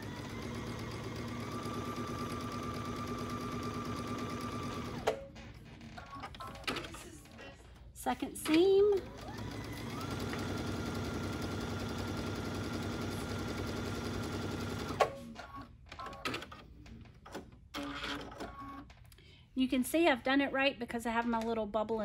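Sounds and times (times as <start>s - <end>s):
sewing machine motor whine: 0.0s - 5.1s, 9.0s - 15.0s.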